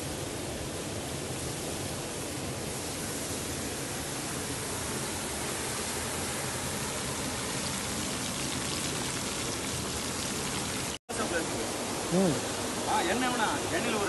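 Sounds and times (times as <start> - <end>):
food sizzling in hot oil: 6.4 - 11.0
waterfall rushing: 11.1 - 14.0.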